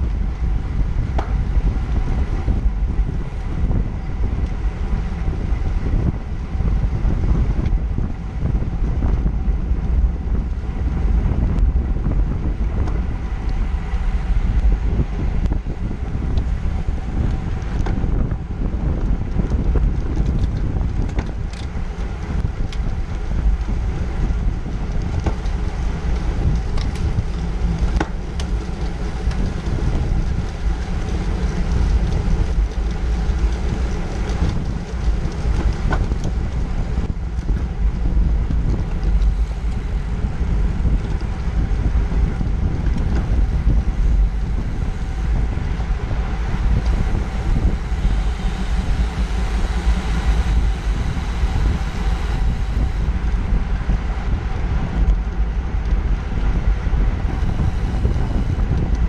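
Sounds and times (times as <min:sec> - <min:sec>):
wind buffeting microphone: 0:00.0 - 0:59.0.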